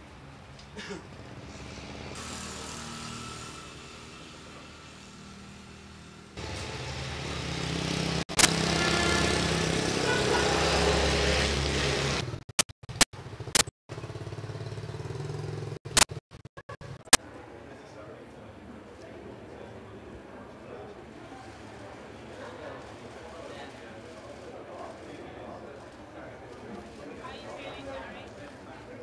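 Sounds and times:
motorbikes driving past: 0.2s - 12.4s, 13.2s - 15.8s
sharp clicks: 8.3s - 8.6s, 12.4s - 13.7s, 15.9s - 17.2s.

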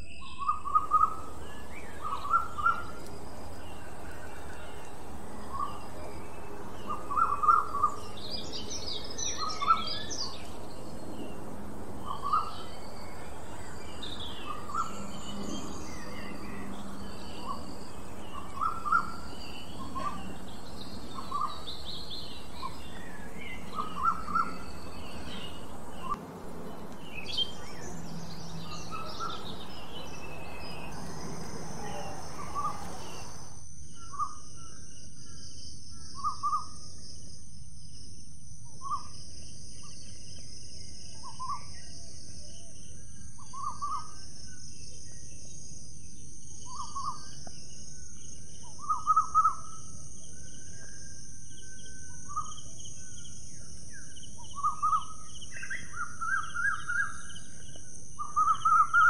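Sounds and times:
birds chirping: 0.0s - 34.4s, 46.3s - 59.0s
high-pitched hiss: 1.2s - 33.8s.

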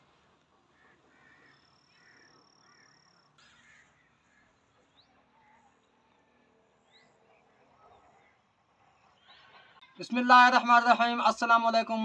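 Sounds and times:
short harsh bird calls: 0.7s - 5.8s.

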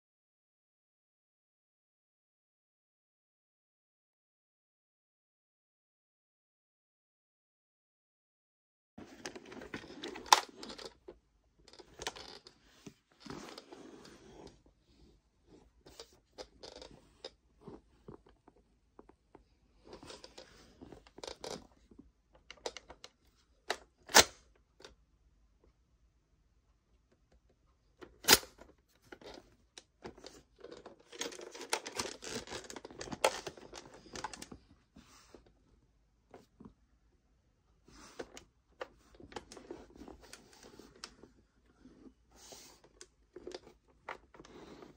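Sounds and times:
sharp plastic clack: 28.2s - 28.6s.

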